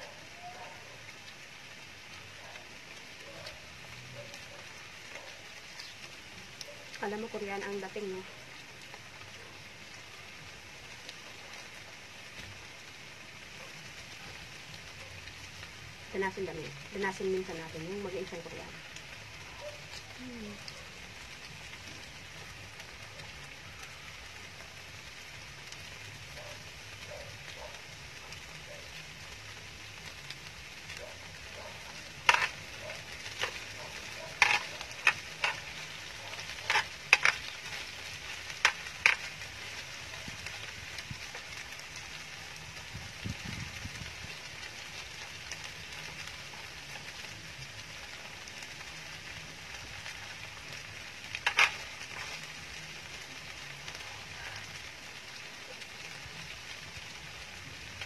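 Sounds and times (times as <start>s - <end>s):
food sizzling in a grill pan: 1.0s - 58.0s
chopsticks and spoon clinking on pan: 32.2s - 32.6s, 34.4s - 35.8s, 36.6s - 37.5s, 51.4s - 52.3s.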